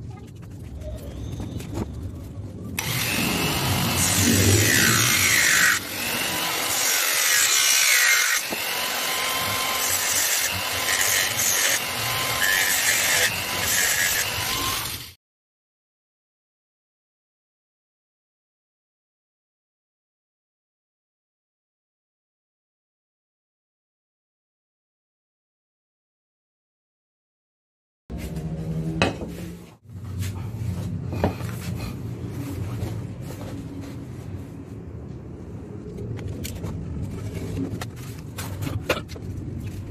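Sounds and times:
angle grinder motor whine: 2.8 - 15.1.

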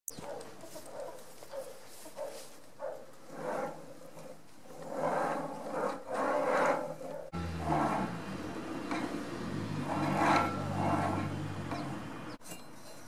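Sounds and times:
roller bearings rumbling on rail: 4.8 - 12.4.

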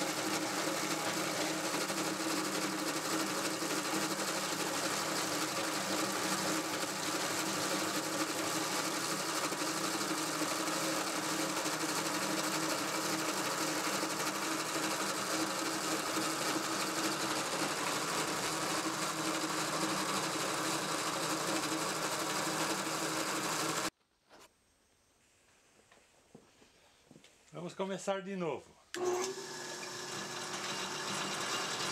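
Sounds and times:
pulleys and chain spinning: 0.0 - 23.9, 29.3 - 31.9
constant motor hum: 29.0 - 31.9.

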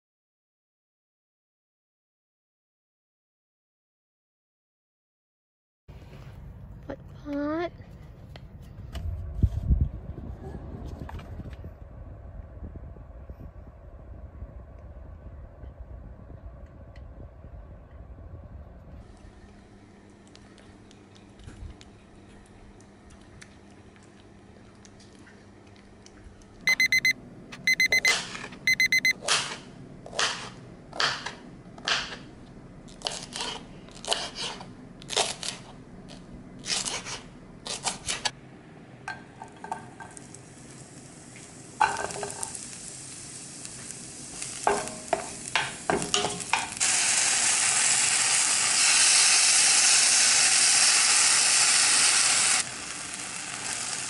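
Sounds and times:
food sizzling in oil: 39.9 - 54.0.

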